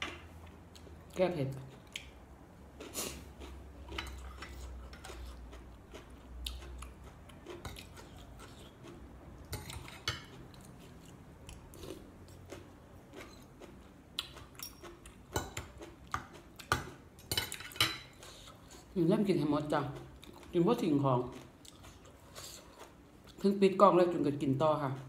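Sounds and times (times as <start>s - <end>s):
cutlery scraping on plate: 3.9s - 5.4s, 9.5s - 10.4s, 14.6s - 18.5s.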